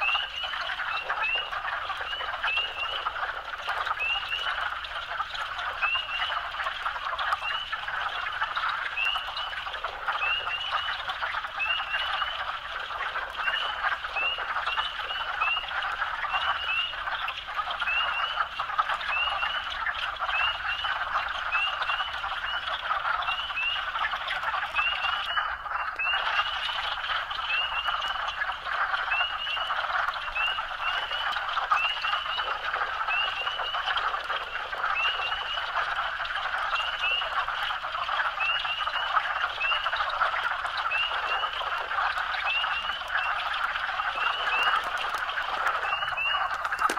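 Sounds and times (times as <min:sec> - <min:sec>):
frog chorus din: 0:00.0 - 0:46.9
sharp rising frog peeps: 0:42.5 - 0:46.9.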